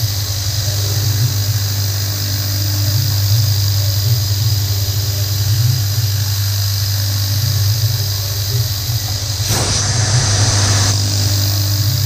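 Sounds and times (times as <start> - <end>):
milling machine hum and whine: 0.0 - 12.0
loud hiss: 9.2 - 12.0.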